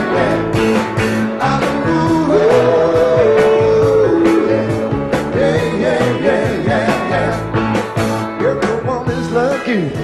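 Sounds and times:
person singing: 0.0s - 7.5s
bass: 0.0s - 10.0s
drums: 0.0s - 10.0s
electric guitar: 0.0s - 10.0s
keyboards: 0.0s - 10.0s.

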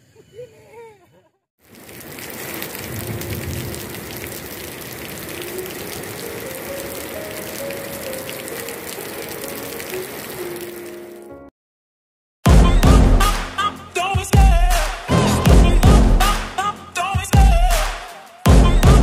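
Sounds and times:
heavy rain splashing on hard floor: 1.6s - 11.2s.

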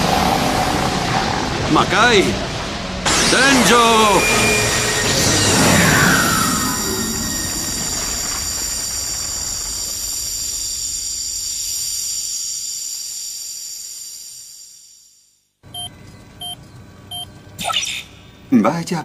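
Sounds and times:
hissing rush: 0.0s - 14.7s
high ringing tones: 3.8s - 8.2s, 15.7s - 17.3s.

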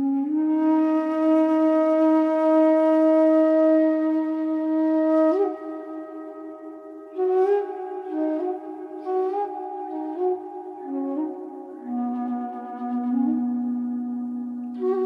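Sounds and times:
slow wind instrument music: 0.0s - 15.0s.

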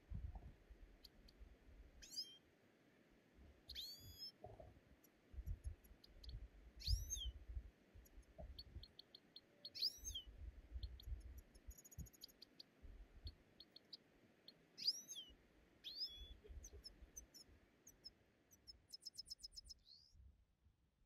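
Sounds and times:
small birds chirping: 0.0s - 1.4s, 2.0s - 2.4s, 3.6s - 20.2s
faint low rumbling: 0.0s - 2.0s.

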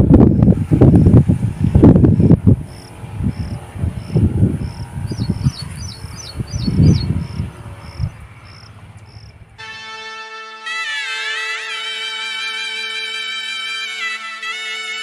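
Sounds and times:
wind rumbling on microphone: 0.0s - 9.6s
cricket chirping: 2.1s - 9.4s
music: 9.6s - 15.0s.

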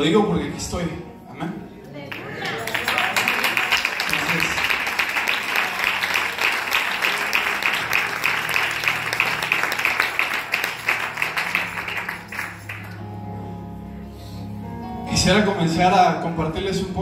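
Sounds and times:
soft instrumental music: 0.0s - 17.0s
audience applauding: 2.1s - 13.1s.

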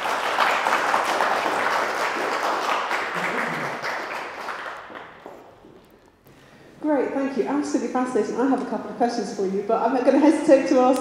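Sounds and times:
audience applause: 0.0s - 5.4s.

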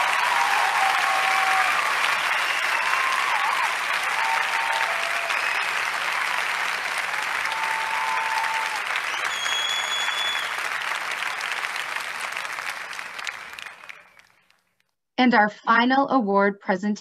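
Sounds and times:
cheers or whistles: 0.0s - 6.4s, 7.1s - 11.8s, 12.5s - 14.4s
crowd applause: 0.0s - 14.6s.

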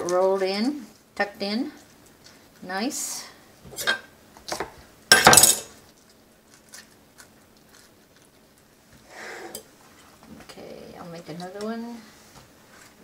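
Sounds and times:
kitchen clatter: 5.1s - 5.8s.

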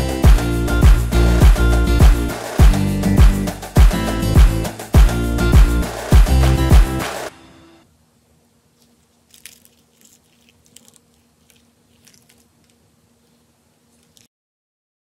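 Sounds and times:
pastry crackling as torn: 8.8s - 14.3s.

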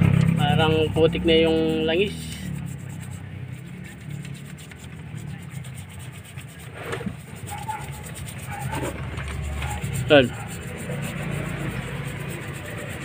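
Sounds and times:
stiff brush scrubbing metal: 0.0s - 13.0s.

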